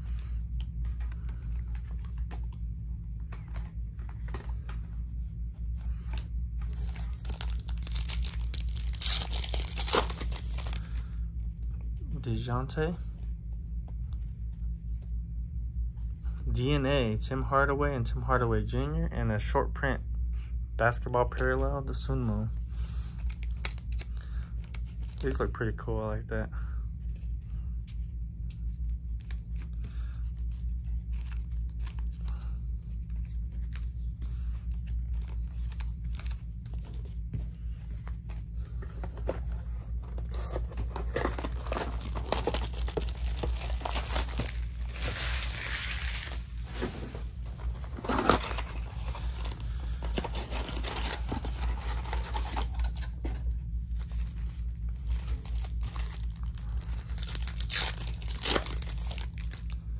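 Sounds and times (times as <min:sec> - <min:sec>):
steady low hum: 0:00.0 - 0:59.9
cards handled with light clicks: 0:03.2 - 0:05.0
plastic wrap crinkling and tearing: 0:06.7 - 0:10.9, 0:40.3 - 0:46.4, 0:54.0 - 0:59.8.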